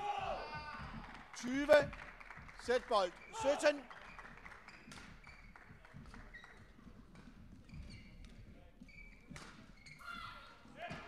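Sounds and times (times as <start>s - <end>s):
shoes squeaking on court floor: 3.0s - 11.0s.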